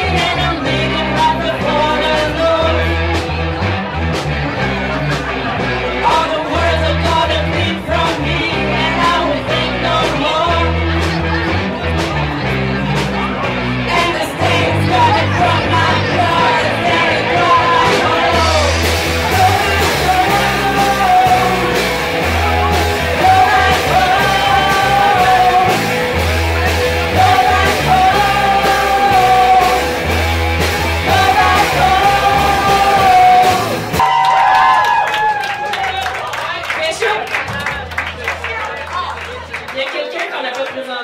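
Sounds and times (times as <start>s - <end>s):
person singing: 0.0s - 3.2s, 5.8s - 11.1s, 13.8s - 34.2s
bass notes: 0.0s - 34.2s.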